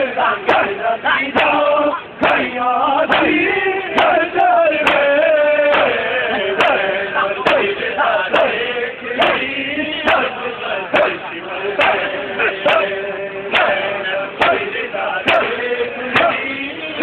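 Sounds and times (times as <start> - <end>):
men chanting in chorus: 0.0 - 17.0
palms slapping bare chests: 0.4 - 0.8, 2.2 - 6.0, 6.6 - 9.5, 11.0 - 16.6.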